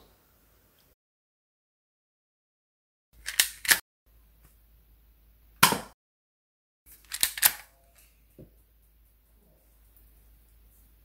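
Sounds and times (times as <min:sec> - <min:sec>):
airsoft pistol plastic clacks: 0:07.0 - 0:07.7.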